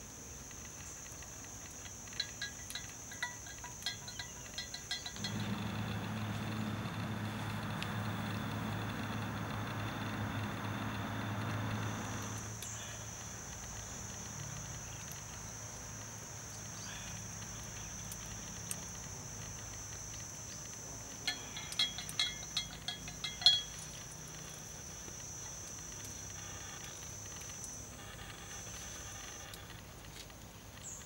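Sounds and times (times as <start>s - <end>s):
insects droning: 0.0s - 31.0s
sharp clinks: 2.1s - 12.6s, 21.2s - 28.2s.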